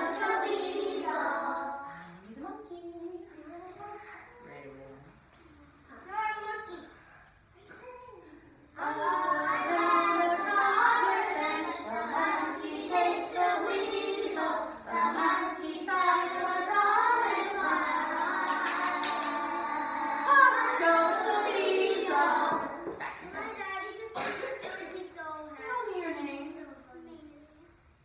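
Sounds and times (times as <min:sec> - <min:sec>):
children singing in unison: 0:00.0 - 0:01.9, 0:08.8 - 0:22.9.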